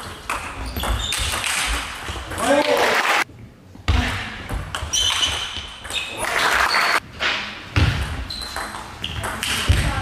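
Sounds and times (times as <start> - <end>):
shoe squeaks on floor: 0.5 - 1.5, 4.9 - 7.0, 8.2 - 9.2.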